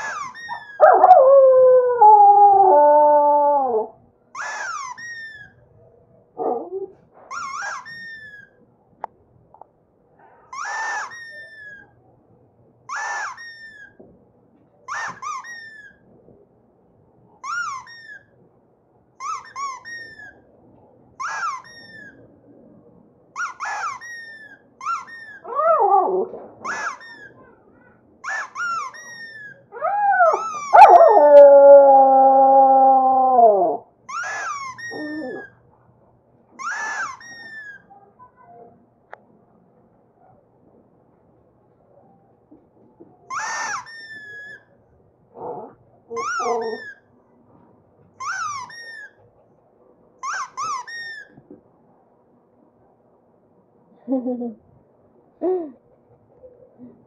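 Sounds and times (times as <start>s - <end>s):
dog whining: 0.0s - 5.6s, 6.4s - 8.6s, 19.2s - 20.4s, 21.2s - 22.2s, 23.4s - 27.4s, 28.2s - 35.6s, 45.4s - 47.1s, 48.1s - 49.2s, 50.2s - 51.4s
dog howling: 0.2s - 4.0s, 25.2s - 26.4s, 29.7s - 35.5s, 45.4s - 47.0s.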